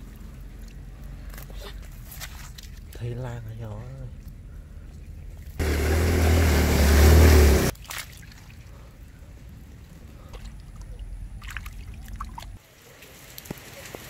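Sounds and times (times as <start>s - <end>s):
hands splashing in muddy puddle: 0.6s - 3.0s, 7.7s - 8.7s, 10.3s - 12.6s.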